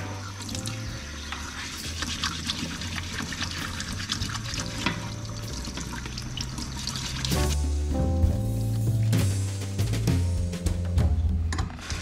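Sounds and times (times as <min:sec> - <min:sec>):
tap water running into sink: 0:00.0 - 0:07.6
soft background music: 0:00.0 - 0:12.0.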